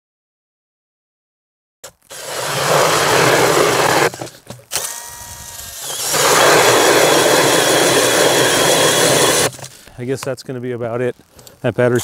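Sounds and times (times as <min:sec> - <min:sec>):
drill auger grinding through ice: 0:02.1 - 0:09.7.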